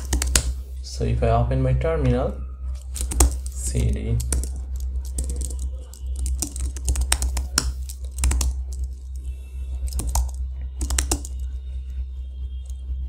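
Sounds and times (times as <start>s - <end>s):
typing on computer keyboard: 0.0s - 0.6s, 2.8s - 9.2s, 9.9s - 11.5s
steady low hum: 0.0s - 13.0s.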